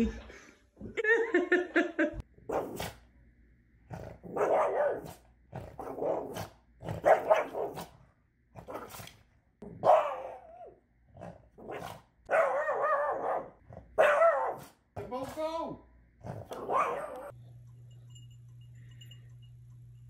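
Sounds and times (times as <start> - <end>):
dog barking: 2.5 - 3.0, 4.3 - 5.2, 5.8 - 7.9, 9.8 - 10.7, 11.6 - 14.8, 16.4 - 17.4.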